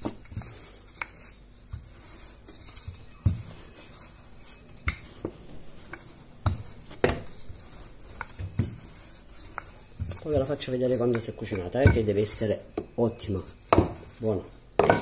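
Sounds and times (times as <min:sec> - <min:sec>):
rolling pin rolling dough: 0:00.0 - 0:15.0.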